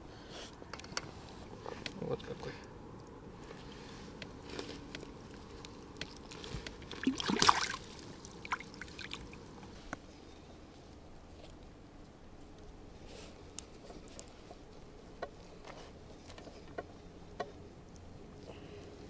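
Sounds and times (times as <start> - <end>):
water splashing: 6.0 - 9.5.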